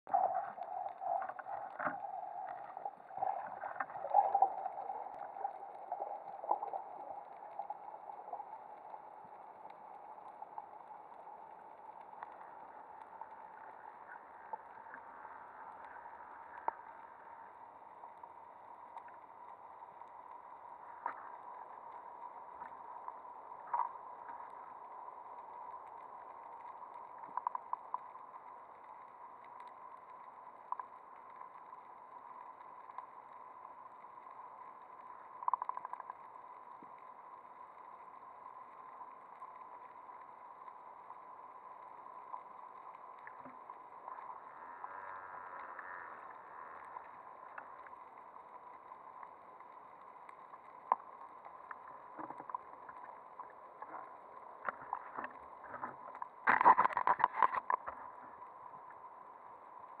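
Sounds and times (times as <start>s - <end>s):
air bubbles crackling: 0.1s - 59.1s
faint steady tone: 0.1s - 60.0s
muffled underwater hiss: 0.1s - 60.0s.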